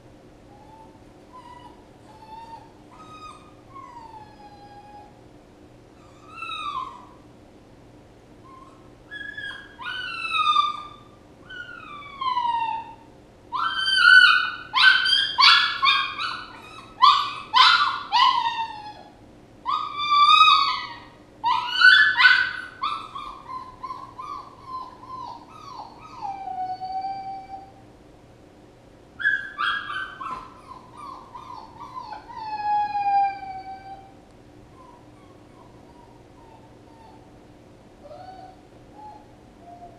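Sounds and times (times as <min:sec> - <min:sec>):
puppy whining and yelping: 0:00.5 - 0:05.2, 0:06.0 - 0:07.3, 0:08.4 - 0:27.8, 0:29.2 - 0:37.4, 0:38.0 - 0:39.9.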